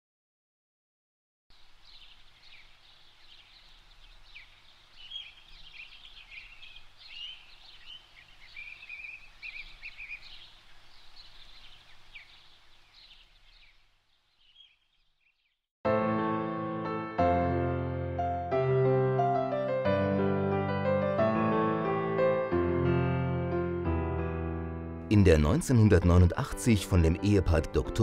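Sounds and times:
small birds chirping: 1.5 - 15.7.

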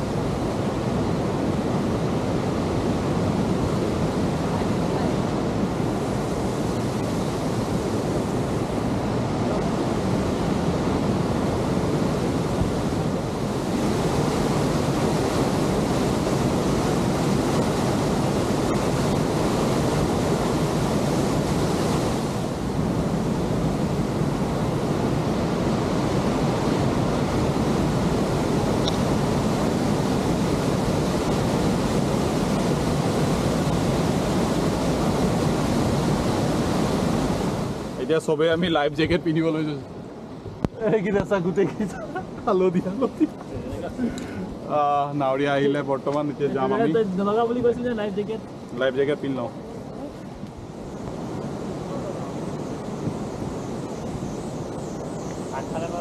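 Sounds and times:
waterfall rushing over rocks: 0.0 - 39.8
wind on microphone: 0.0 - 48.8, 49.4 - 56.0.

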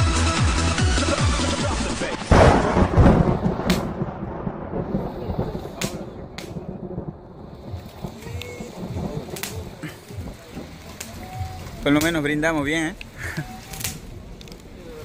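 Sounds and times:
dance music: 0.0 - 2.3
loud boom: 2.2 - 12.8
sharp cracks: 2.2 - 15.0.

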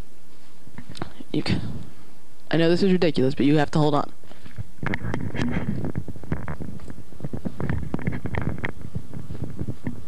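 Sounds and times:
microphone handling noise: 0.2 - 2.3, 4.2 - 10.0.

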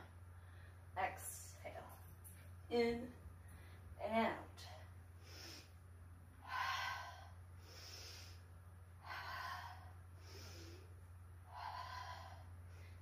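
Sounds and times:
woman breathing: 0.0 - 1.0, 3.4 - 4.0, 4.6 - 13.0.

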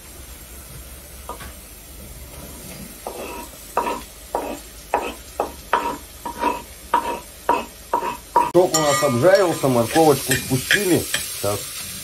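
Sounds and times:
faint sizzle: 0.0 - 12.0
metal spoon scraping pot: 3.0 - 10.9.

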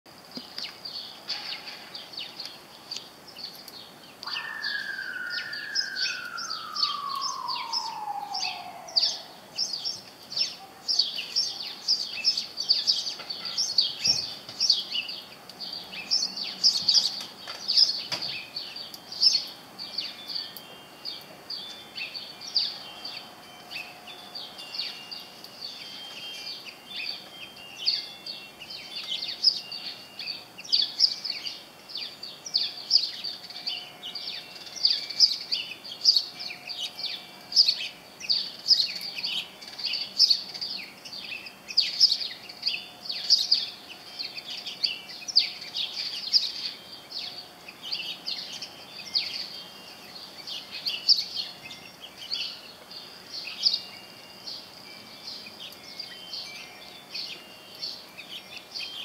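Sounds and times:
songbirds chirping: 0.1 - 59.0
long falling tone: 4.2 - 9.6.

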